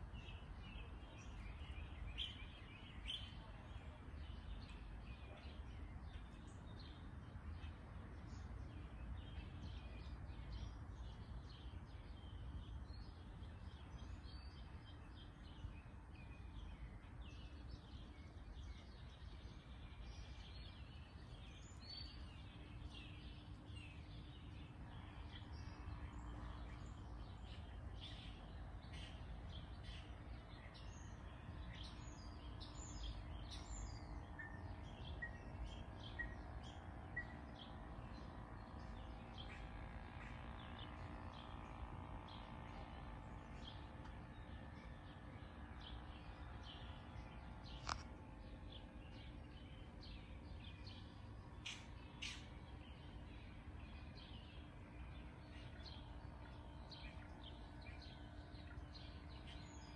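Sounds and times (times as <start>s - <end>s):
low steady rumble: 0.0s - 59.9s
small birds chirping: 0.0s - 59.9s.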